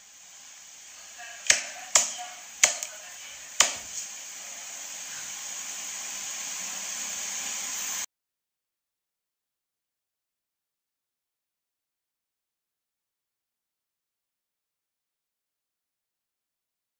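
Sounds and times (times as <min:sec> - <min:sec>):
steady hiss: 0:00.0 - 0:08.1.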